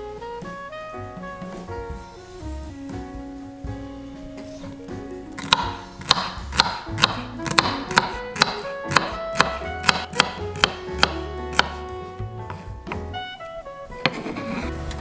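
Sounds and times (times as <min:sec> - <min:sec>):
knife chopping on wooden board: 0:05.4 - 0:11.8.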